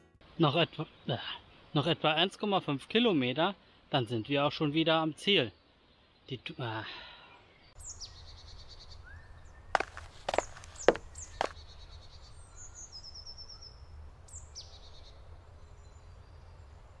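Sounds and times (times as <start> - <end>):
birds chirping and trilling: 3.7 - 17.0.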